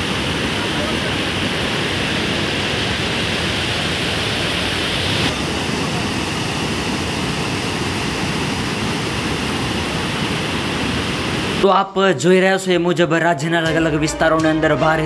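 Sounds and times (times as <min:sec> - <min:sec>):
heavy rain pouring in wind: 0:00.0 - 0:11.6.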